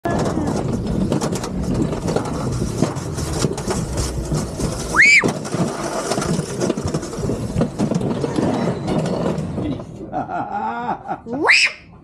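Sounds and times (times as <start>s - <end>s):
ride cart wheels rumbling on track: 0.0s - 10.2s.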